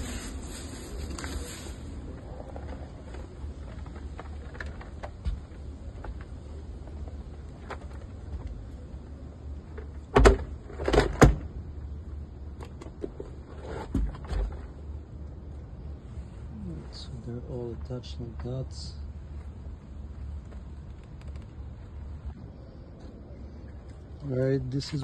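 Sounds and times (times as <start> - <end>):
rubber mats rubbing and clicking: 0.0 - 11.2, 19.4 - 23.2.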